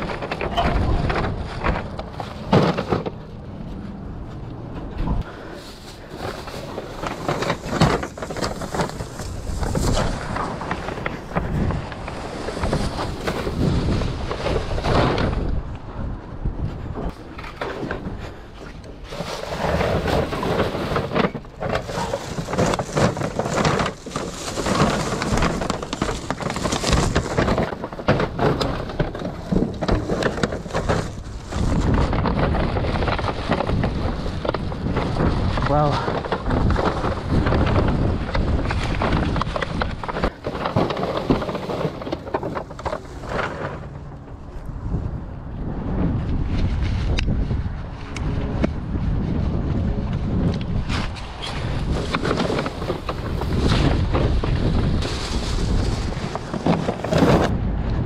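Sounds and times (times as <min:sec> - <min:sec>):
items knocking and clattering: 0:00.0 - 0:03.4, 0:06.2 - 0:15.6, 0:19.6 - 0:44.0
plastic bags rustling and crinkling: 0:00.0 - 0:15.7, 0:18.2 - 0:44.3, 0:50.3 - 0:57.6.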